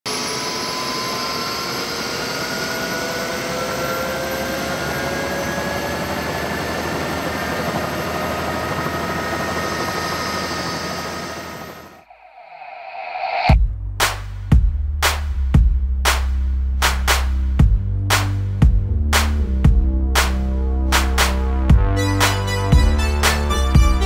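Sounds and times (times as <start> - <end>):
helicopter rotor and engine noise: 0.1 - 12.0
turbine whine rising in pitch: 0.1 - 13.6.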